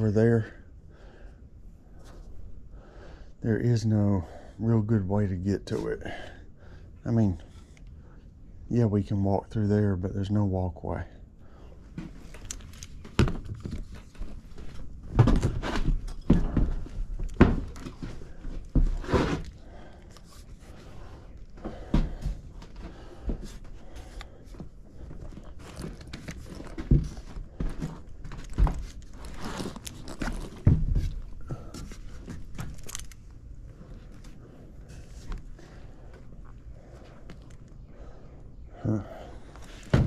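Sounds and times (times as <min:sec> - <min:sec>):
footsteps on wooden joists: 0:11.9 - 0:33.1.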